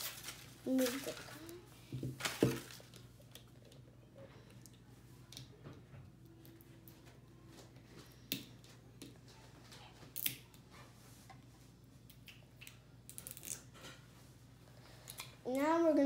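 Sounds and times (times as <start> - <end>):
wrapping crinkling: 0.0 - 3.5.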